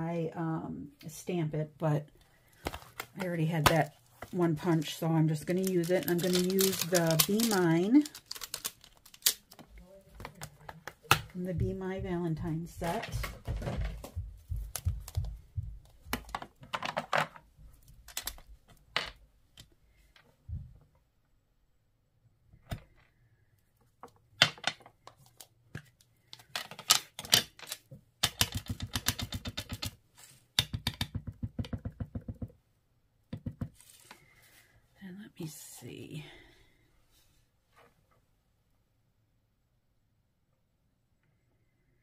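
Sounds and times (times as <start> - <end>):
plastic pieces clicking: 5.5 - 11.3, 16.1 - 19.7, 24.1 - 30.0.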